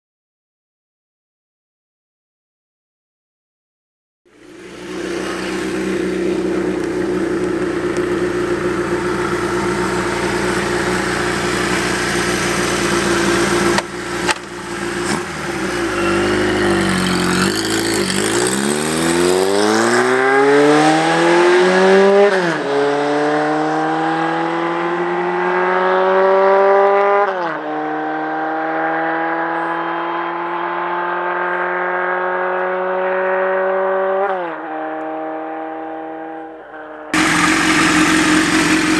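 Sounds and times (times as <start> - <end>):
rushing noise: 4.3 - 20.2
motorcycle engine accelerating: 4.3 - 38.9.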